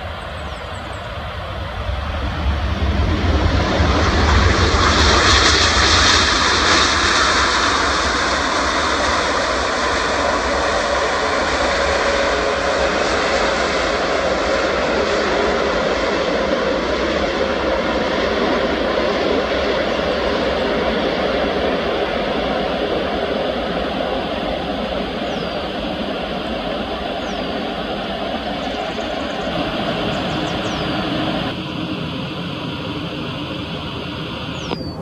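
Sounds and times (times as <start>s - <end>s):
jet engines roaring: 0.0s - 35.0s
rushing air: 21.6s - 35.0s.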